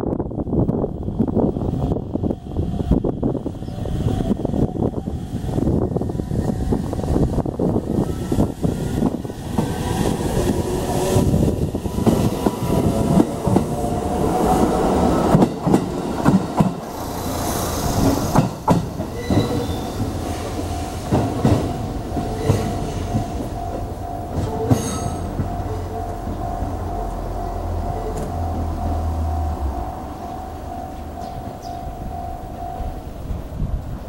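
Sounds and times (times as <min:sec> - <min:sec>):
electric train motors whining: 0:01.0 - 0:33.5
train wheels clacking over rail joints: 0:09.5 - 0:26.8.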